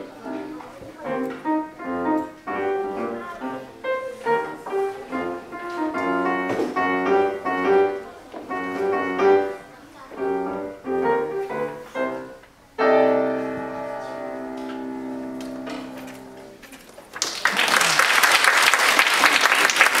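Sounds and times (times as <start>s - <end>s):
grand piano playing: 0.0s - 16.6s
audience applause: 17.1s - 20.0s.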